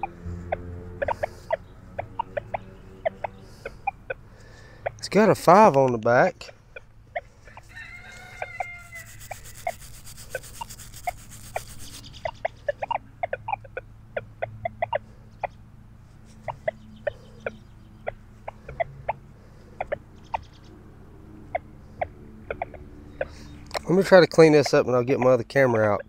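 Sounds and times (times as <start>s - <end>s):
chickens clucking: 0.0s - 26.0s
scratchy hiss: 7.7s - 12.4s.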